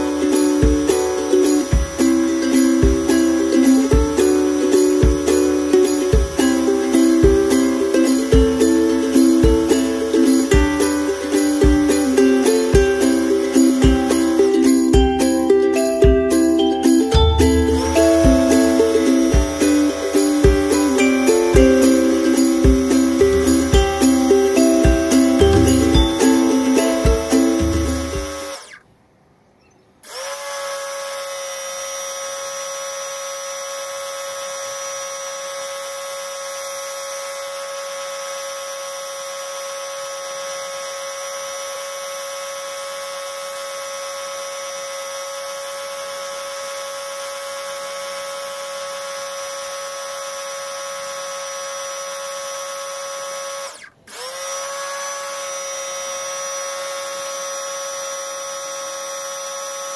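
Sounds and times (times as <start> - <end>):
pressure washer motor whine: 0.0 - 28.8.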